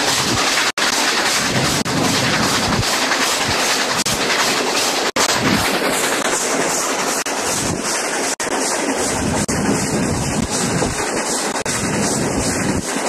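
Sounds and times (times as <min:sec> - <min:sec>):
train rolling at speed: 0:00.0 - 0:13.0
wind rushing: 0:01.3 - 0:04.1, 0:09.0 - 0:13.0.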